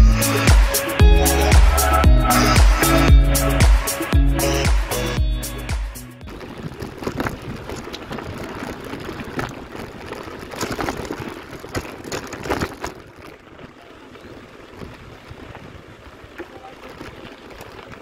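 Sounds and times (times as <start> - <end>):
bike rattling over bumps: 6.2 - 18.0
bike tyres crunching on gravel: 6.2 - 18.0.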